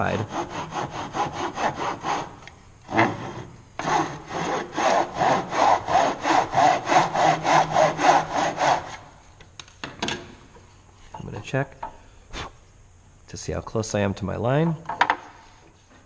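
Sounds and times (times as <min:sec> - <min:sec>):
saw cutting wood: 0:00.0 - 0:09.1.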